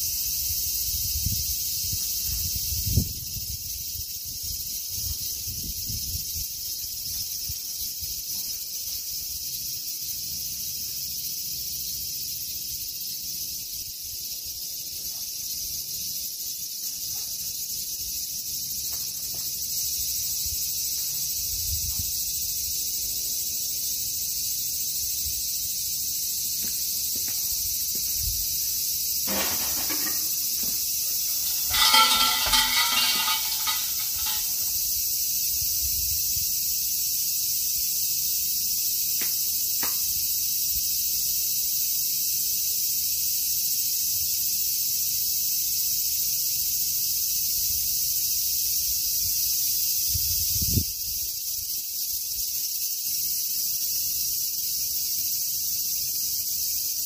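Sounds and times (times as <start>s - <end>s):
insect chorus: 0.0s - 57.0s
short rattle: 29.3s - 34.8s
bell jingling: 31.0s - 34.7s.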